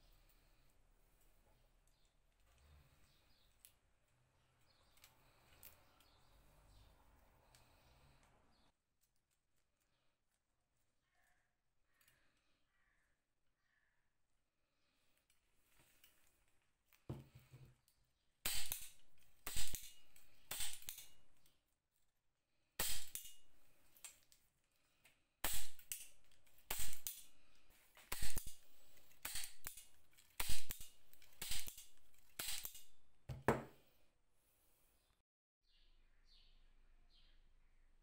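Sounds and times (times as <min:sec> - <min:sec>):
spring-loaded tool snapping: 0:18.5 - 0:21.4, 0:22.8 - 0:24.2, 0:25.4 - 0:27.4, 0:28.0 - 0:32.9.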